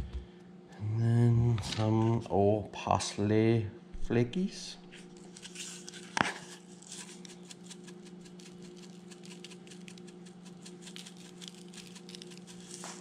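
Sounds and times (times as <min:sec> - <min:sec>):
low steady hum: 0:00.0 - 0:13.0
spice flakes shaken from jar: 0:06.5 - 0:13.0.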